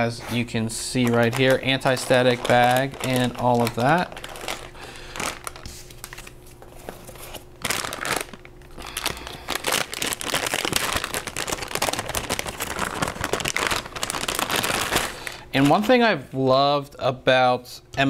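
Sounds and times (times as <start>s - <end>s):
plastic bag crinkling: 0.4s - 16.0s.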